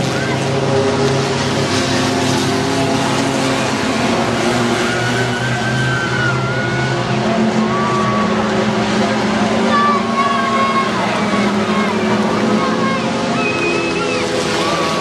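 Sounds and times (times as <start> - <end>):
racing truck engines: 0.0 - 15.0.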